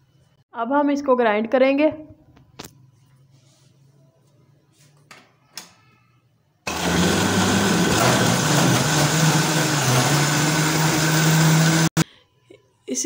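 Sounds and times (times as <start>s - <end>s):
juicer motor running: 6.7s - 12.0s.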